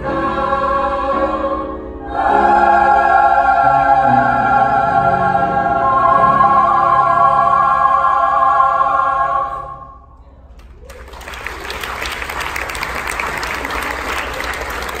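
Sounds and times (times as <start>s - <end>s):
choir holding a chord: 0.0s - 10.2s
audience applause: 10.6s - 15.0s.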